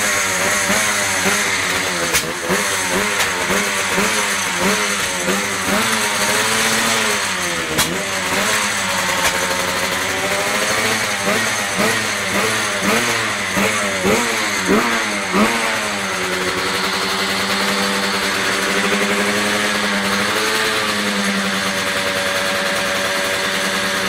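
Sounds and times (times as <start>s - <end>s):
motorcycle engine revving and idling: 0.0s - 24.0s.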